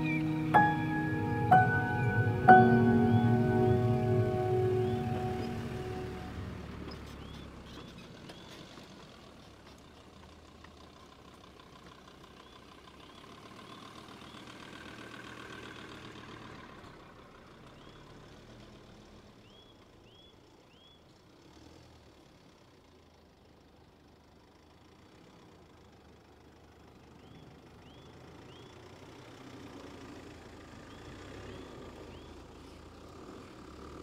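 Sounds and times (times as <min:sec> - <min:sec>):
small birds chirping: 0:00.0 - 0:06.3, 0:06.9 - 0:08.7, 0:19.4 - 0:21.2, 0:27.0 - 0:28.9, 0:30.8 - 0:32.8
vehicle engines low rumble: 0:00.0 - 0:34.0.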